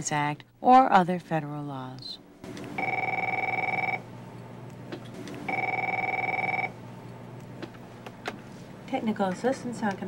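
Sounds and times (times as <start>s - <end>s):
desk telephone ringing: 2.5s - 4.1s, 5.4s - 6.8s.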